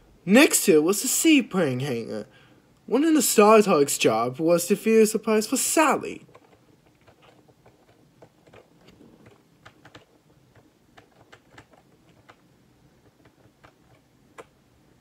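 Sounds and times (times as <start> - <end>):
low steady hum: 0.0 - 15.0
computer keyboard typing: 6.2 - 14.6.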